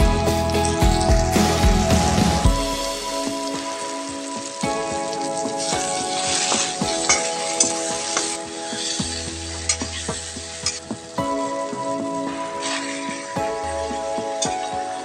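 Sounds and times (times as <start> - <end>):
vegetables sizzling in hot oil: 1.4 - 15.0.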